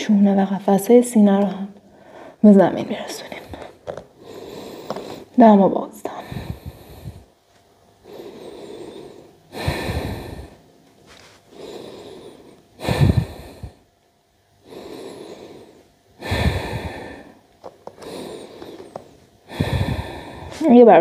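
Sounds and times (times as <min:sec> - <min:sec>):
person breathing deeply: 0:01.9 - 0:02.4, 0:03.4 - 0:05.4, 0:06.2 - 0:07.4, 0:08.0 - 0:10.7, 0:11.5 - 0:13.9, 0:14.6 - 0:20.7.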